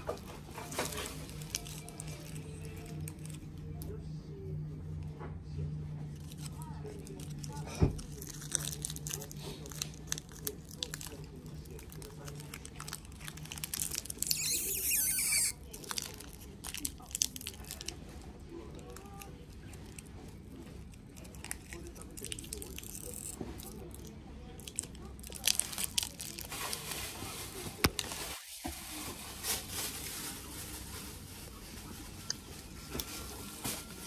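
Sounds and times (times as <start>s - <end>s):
snack wrapper crinkling: 0.0s - 4.0s, 6.1s - 28.2s
loud wrapper rip: 6.2s - 18.0s.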